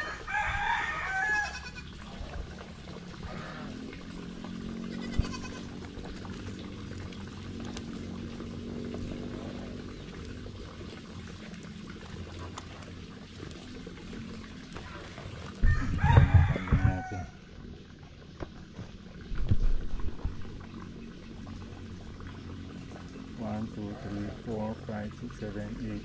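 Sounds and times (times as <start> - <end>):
rooster crowing: 0.0 - 1.8, 15.6 - 17.4
goats bleating: 1.2 - 2.0, 4.9 - 5.8.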